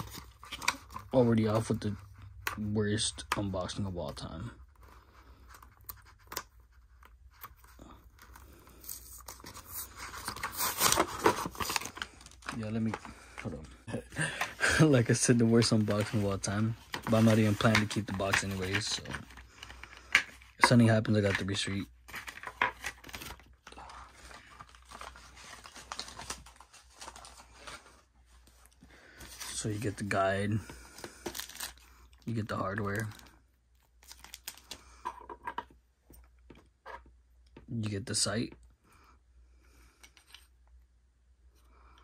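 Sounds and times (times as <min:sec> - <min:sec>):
packaging clicking and crinkling: 0:22.1 - 0:27.8, 0:30.9 - 0:31.8.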